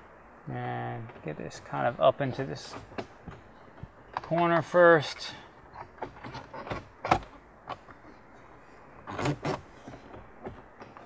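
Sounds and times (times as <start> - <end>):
plastic trim clicks and creaks: 9.0 - 10.2.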